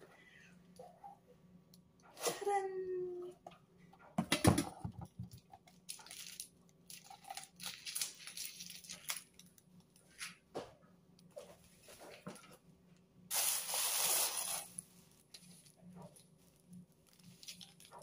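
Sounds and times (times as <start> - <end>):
plastic bag crinkling: 5.7 - 10.2, 13.3 - 18.0.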